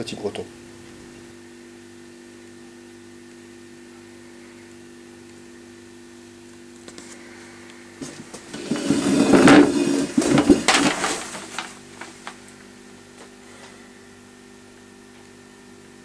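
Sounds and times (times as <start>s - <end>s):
faint electrical hum: 0.0s - 16.0s
paper rustling and crackling: 8.0s - 12.6s.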